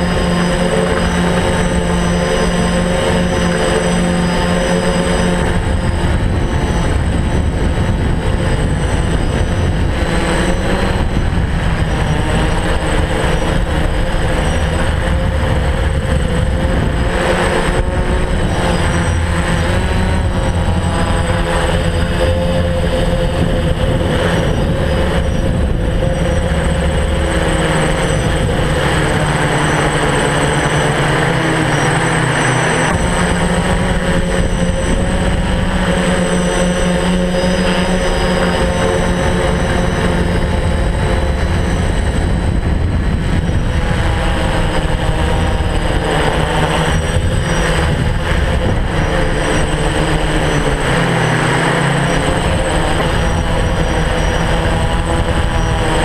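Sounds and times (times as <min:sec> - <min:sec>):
drone motors humming: 0:00.0 - 0:56.0
thin high whine: 0:00.0 - 0:56.0.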